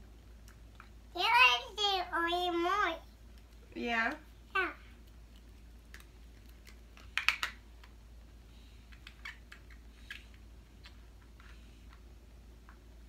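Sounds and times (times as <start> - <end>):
makeup packaging clicks and crinkles: 3.2 - 4.2, 5.0 - 8.0, 8.9 - 12.0.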